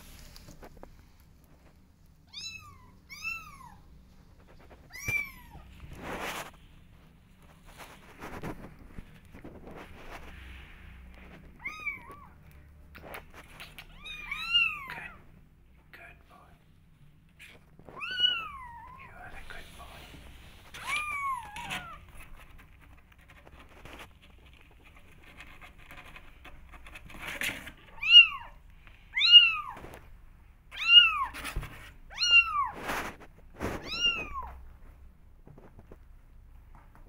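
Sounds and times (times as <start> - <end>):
kittens meowing: 4.9 - 5.7, 11.6 - 12.4, 13.8 - 15.2, 18.0 - 19.1, 20.8 - 22.0, 28.0 - 29.8, 30.7 - 31.4, 33.8 - 34.6.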